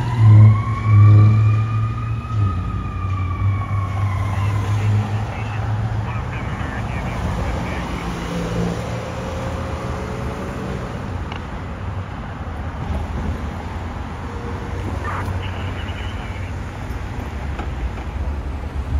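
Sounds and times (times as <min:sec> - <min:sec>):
car engines idling in traffic: 0:04.3 - 0:08.2, 0:14.8 - 0:18.9.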